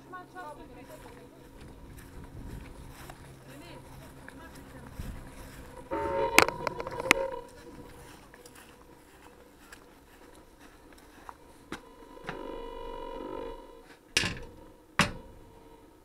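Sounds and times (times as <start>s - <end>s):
buzzing tone: 0.0s - 16.0s
faint steady hum: 0.0s - 16.0s
camera handling noise: 6.3s - 7.3s
sharp knocks: 14.2s - 15.4s.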